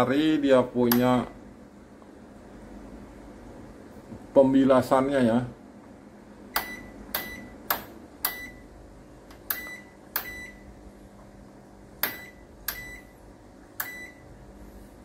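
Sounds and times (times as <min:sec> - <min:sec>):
washing machine beeps: 0:06.5 - 0:07.6, 0:08.2 - 0:08.7, 0:09.5 - 0:10.8, 0:12.0 - 0:13.2, 0:13.8 - 0:14.4.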